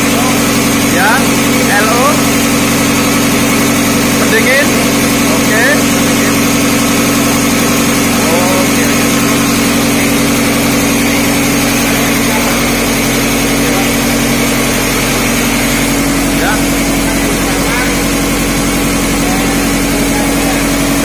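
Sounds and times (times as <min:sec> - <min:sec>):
diesel engines droning: 0:00.0 - 0:21.0.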